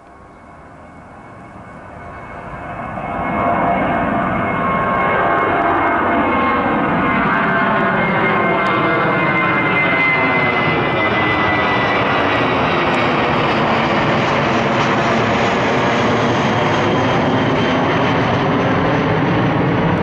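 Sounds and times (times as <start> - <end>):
high engine whine: 0.0 - 20.0
jet engines roaring overhead: 0.0 - 20.0.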